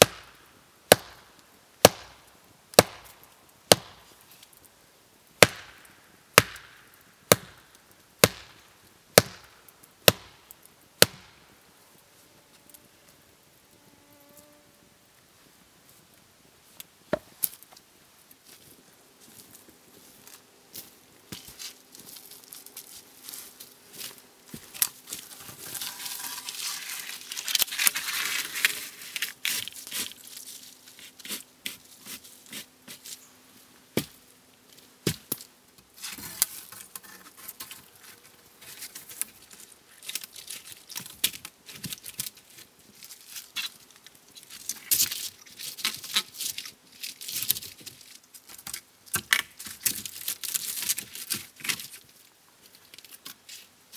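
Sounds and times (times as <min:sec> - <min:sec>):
dry branches rustling and snapping: 0:16.8 - 0:33.2, 0:34.0 - 0:53.7.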